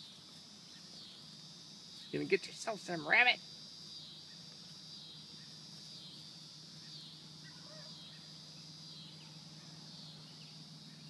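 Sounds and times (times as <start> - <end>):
high-pitched insect chorus: 0.0 - 11.0
faint chirps: 4.0 - 11.0.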